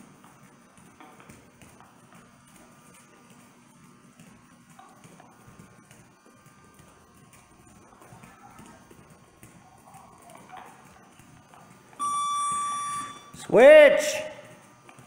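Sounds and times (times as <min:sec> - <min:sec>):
bare feet hopping on foam mats: 0:00.0 - 0:11.9
electronic timer beep: 0:12.0 - 0:13.4.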